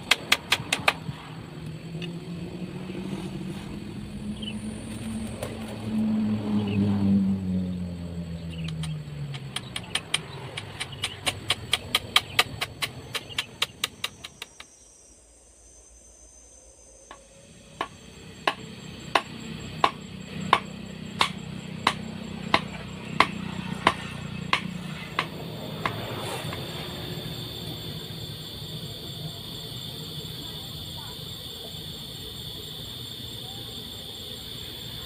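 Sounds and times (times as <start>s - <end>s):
sharp striking knocks: 17.8s - 26.0s.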